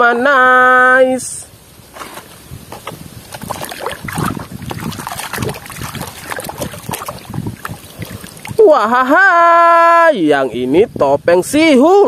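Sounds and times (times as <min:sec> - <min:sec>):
water sloshing and splashing: 0:02.0 - 0:09.0.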